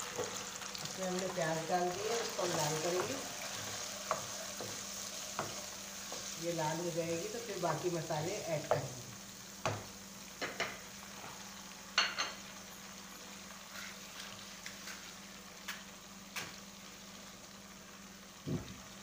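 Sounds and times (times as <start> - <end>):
onions sizzling in hot oil: 0.0 - 19.0
wooden spoon knocking on pan: 2.5 - 6.3, 8.6 - 8.9, 9.6 - 10.8.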